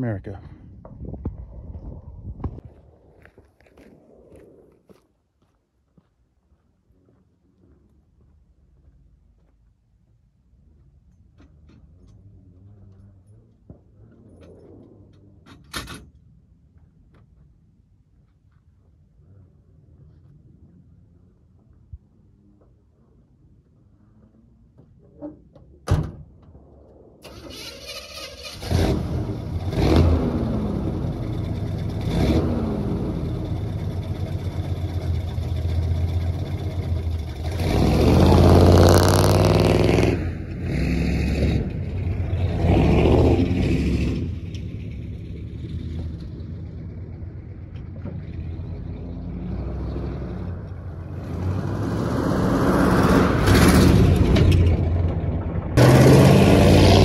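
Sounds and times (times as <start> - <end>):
truck accelerating past: 27.2 - 57.0
truck engine starting and revving: 27.2 - 57.0.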